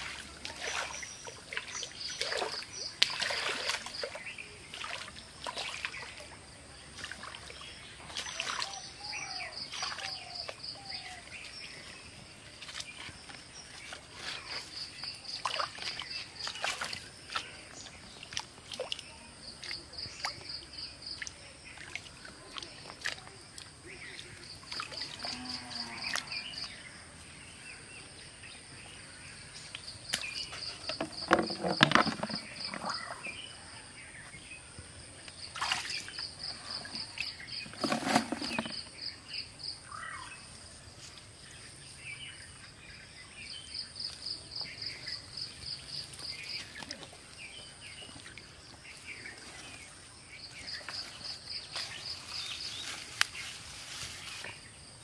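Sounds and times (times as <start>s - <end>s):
muddy water splashing: 0.0s - 25.4s, 29.7s - 33.5s, 35.4s - 39.2s
bird calls: 28.6s - 34.4s.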